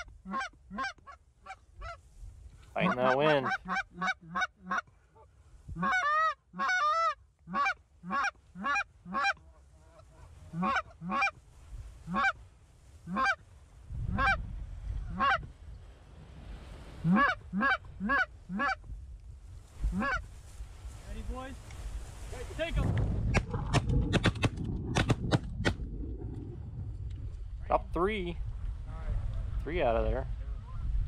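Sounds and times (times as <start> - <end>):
geese honking: 0.0 - 2.0, 2.8 - 4.9, 5.8 - 11.4, 12.0 - 12.4, 13.0 - 13.4, 15.1 - 15.5, 17.0 - 18.8, 19.9 - 20.2
wind rumble on microphone: 9.9 - 31.0.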